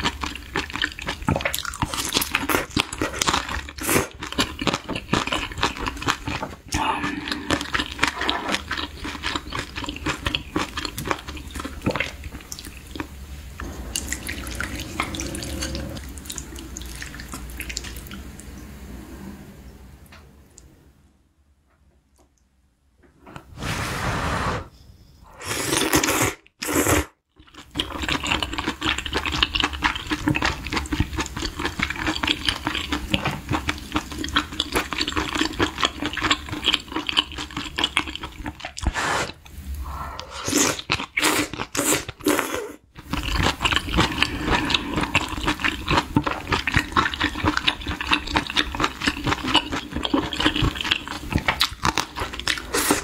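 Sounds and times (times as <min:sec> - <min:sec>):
person slurping and chewing noodles: 0:00.0 - 0:18.2, 0:25.3 - 0:53.0.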